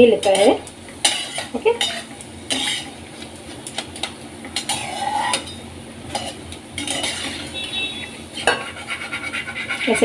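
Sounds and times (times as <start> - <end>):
oil sizzling: 0.0 - 10.0
spoon clinking and scraping pan: 0.2 - 2.9, 4.6 - 7.7, 8.4 - 9.2.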